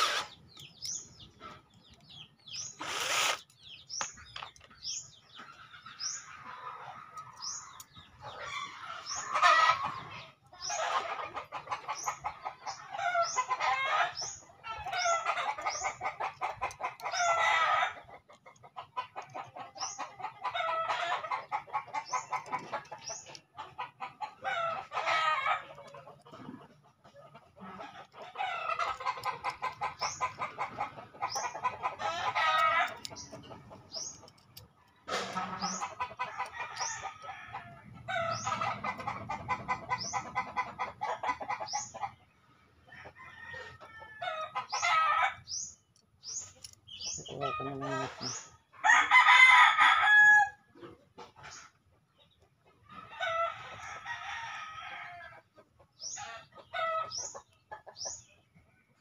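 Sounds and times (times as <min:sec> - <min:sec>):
roosters crowing: 0:00.0 - 0:01.0, 0:05.9 - 0:18.2, 0:19.8 - 0:22.9, 0:23.8 - 0:26.7, 0:27.6 - 0:34.2, 0:35.1 - 0:41.9, 0:42.8 - 0:45.7, 0:46.6 - 0:50.8, 0:52.9 - 0:57.4
chickens clucking: 0:00.0 - 0:59.0.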